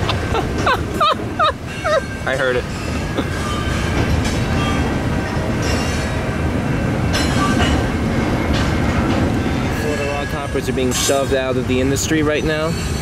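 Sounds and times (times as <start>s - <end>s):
train wheels rumbling on rails: 0.0s - 13.0s
faint high wheel squeal: 1.7s - 6.2s, 9.4s - 13.0s.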